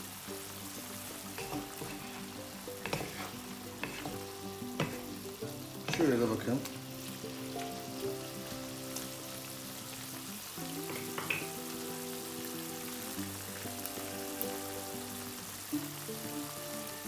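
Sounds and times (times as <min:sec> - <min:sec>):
food sizzling in a wok: 0:00.0 - 0:17.0
soft background music: 0:00.0 - 0:17.0
wooden spatula tapping: 0:01.4 - 0:05.2, 0:05.8 - 0:06.3.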